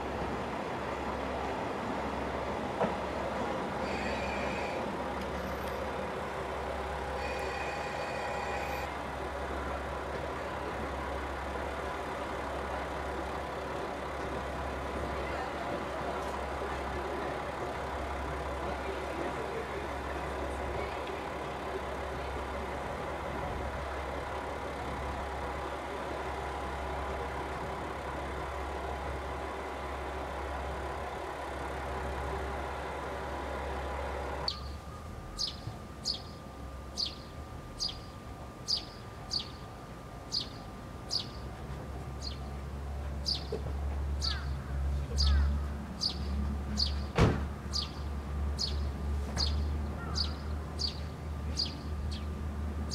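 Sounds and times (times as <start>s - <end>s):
approaching diesel railcar rumble: 0.0s - 52.9s
diesel railcar idling: 0.0s - 52.9s
bird chirping: 34.5s - 34.8s, 35.4s - 39.7s, 40.3s - 41.5s, 43.2s - 43.5s, 45.1s - 47.1s, 47.7s - 52.3s.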